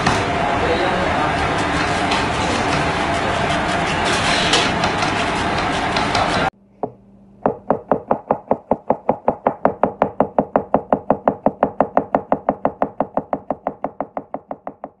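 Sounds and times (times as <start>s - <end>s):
knife chopping on cutting board: 2.0s - 15.0s.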